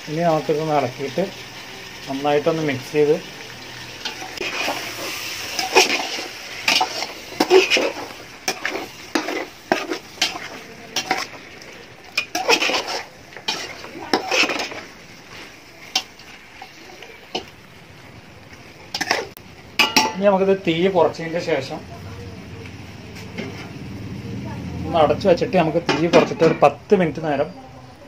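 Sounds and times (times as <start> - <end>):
light sizzle: 0.0 - 28.0
metal spatula scraping a pot: 4.0 - 17.5, 18.9 - 20.1.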